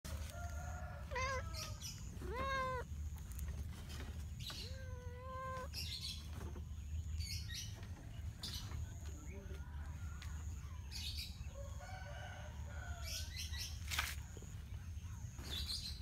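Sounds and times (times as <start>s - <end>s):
cat meowing: 1.1s - 2.9s, 4.6s - 5.8s.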